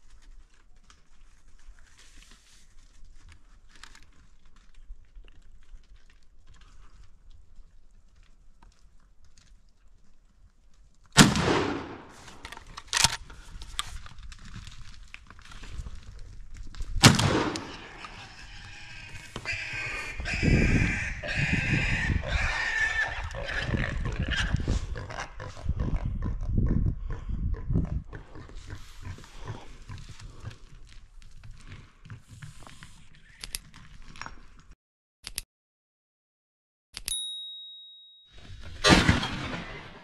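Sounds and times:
shotgun shots: 0:11.2 - 0:12.2, 0:17.0 - 0:17.9, 0:38.8 - 0:40.0.

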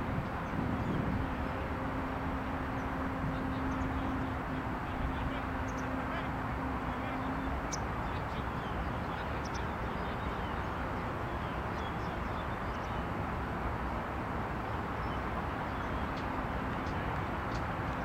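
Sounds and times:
outdoor background noise: 0:00.0 - 0:18.0.

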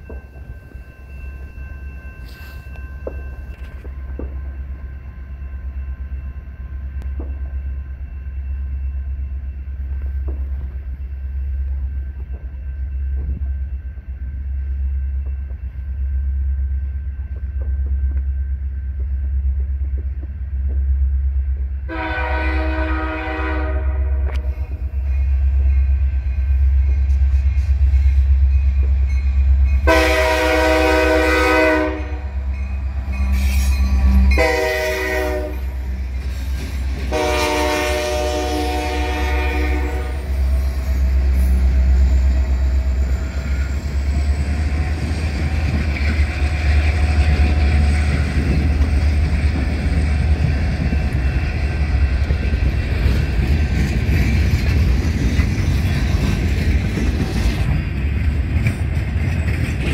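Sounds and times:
locomotive rumble: 0:00.0 - 0:59.9
locomotive horn blasts: 0:21.9 - 0:24.6, 0:29.8 - 0:32.4, 0:34.0 - 0:35.8, 0:37.1 - 0:40.3.

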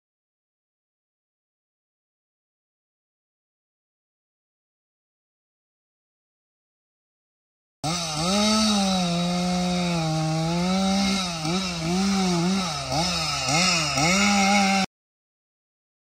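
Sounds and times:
chainsaw cutting wood: 0:07.8 - 0:14.9.

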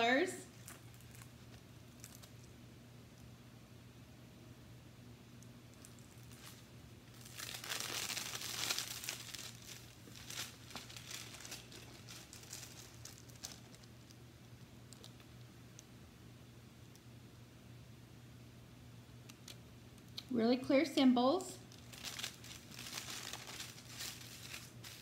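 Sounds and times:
plastic film crinkling: 0:00.5 - 0:02.6, 0:05.7 - 0:14.2, 0:14.9 - 0:15.4, 0:21.6 - 0:25.0.

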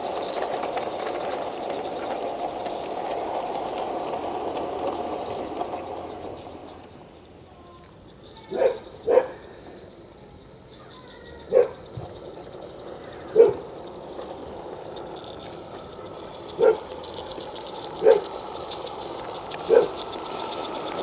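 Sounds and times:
small steam locomotive running: 0:00.0 - 0:21.0
dog barking: 0:08.5 - 0:09.4, 0:11.5 - 0:11.8, 0:13.4 - 0:13.6, 0:16.6 - 0:16.8, 0:18.0 - 0:18.2, 0:19.7 - 0:19.9.

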